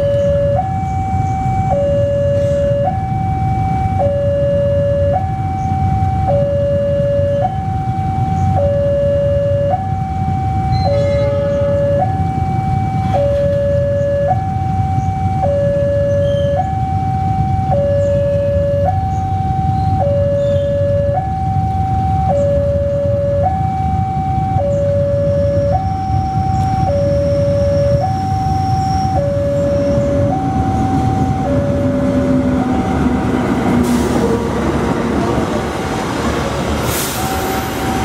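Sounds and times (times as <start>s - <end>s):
two-tone warning alarm: 0.0s - 34.5s, 37.0s - 38.0s
steady low rumble: 11.6s - 36.8s.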